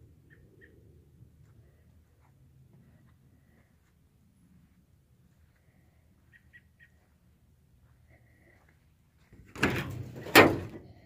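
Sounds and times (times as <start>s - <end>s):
latch clunk: 9.4s - 10.9s
compartment door banging open: 9.5s - 10.8s.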